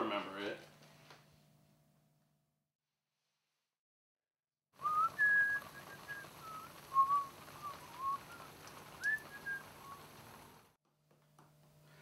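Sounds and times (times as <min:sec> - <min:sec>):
person whistling a tune: 0:04.8 - 0:10.0.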